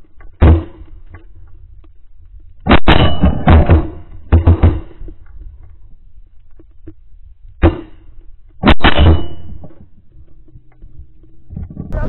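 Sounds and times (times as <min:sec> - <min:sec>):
shotgun shots: 0:02.7 - 0:05.0, 0:08.6 - 0:09.6.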